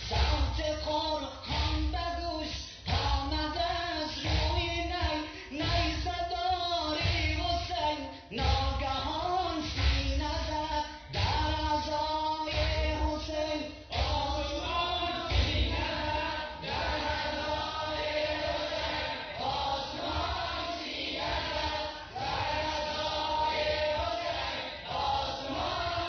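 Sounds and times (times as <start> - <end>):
group of voices chanting: 13.9 - 26.0.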